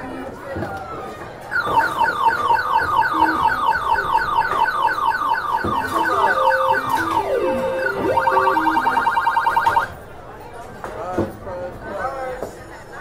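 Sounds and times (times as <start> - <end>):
arcade machine falling beeps: 1.5 - 9.9.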